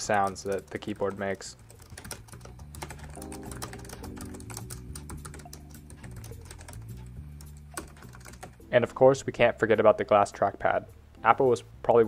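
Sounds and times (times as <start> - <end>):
fast keyboard typing: 0.0 - 8.6
soft background music: 0.0 - 12.0.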